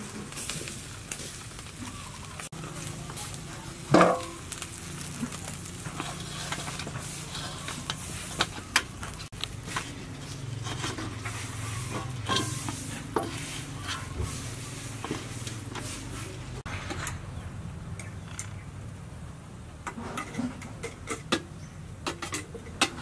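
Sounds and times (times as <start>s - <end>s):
fish sizzling on a grill: 0.0s - 16.7s
fat crackling and popping: 0.0s - 18.8s.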